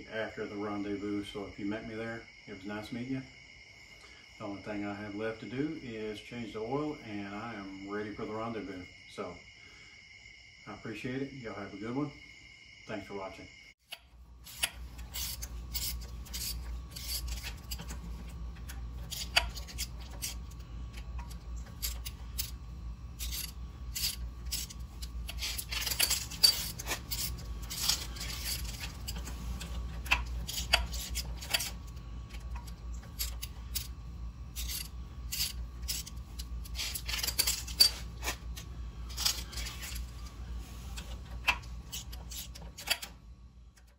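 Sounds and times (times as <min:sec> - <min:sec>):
steady low hum: 0:00.0 - 0:43.9
metal scraping and rubbing: 0:14.4 - 0:43.2
metal tools clinking on concrete: 0:23.2 - 0:31.8, 0:34.6 - 0:38.4.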